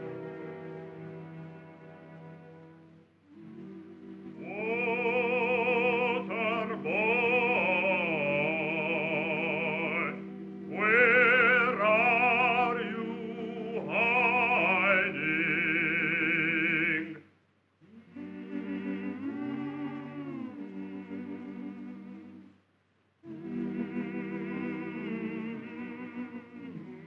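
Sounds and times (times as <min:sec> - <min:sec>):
low sustained accompaniment: 0:00.0 - 0:17.1
operatic singing: 0:03.2 - 0:22.5, 0:23.2 - 0:27.0.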